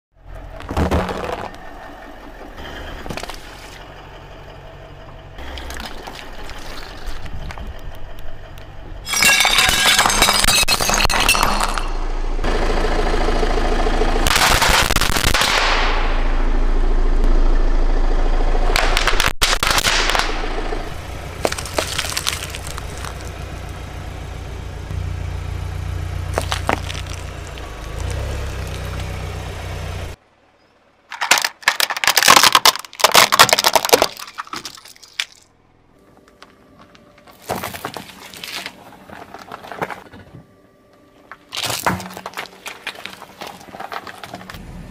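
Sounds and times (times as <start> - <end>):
tyre crushing small objects: 21.4 - 23.8, 26.2 - 29.2, 31.1 - 35.5, 36.2 - 40.4, 41.3 - 44.6.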